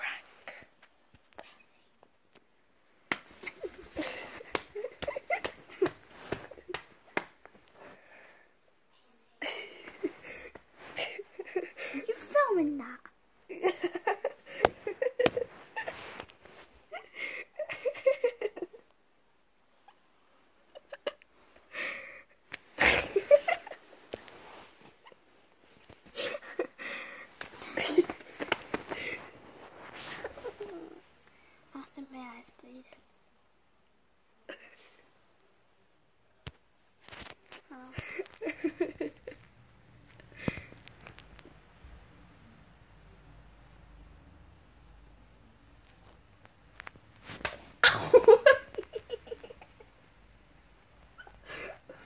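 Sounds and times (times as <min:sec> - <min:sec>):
sharp slap: 0:47.3 - 0:47.7.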